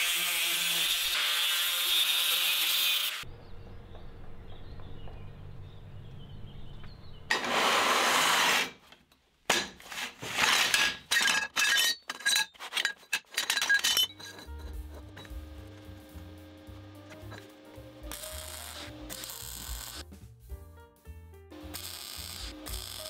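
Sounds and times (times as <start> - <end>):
steel tubes clanking: 9.5 - 17.6.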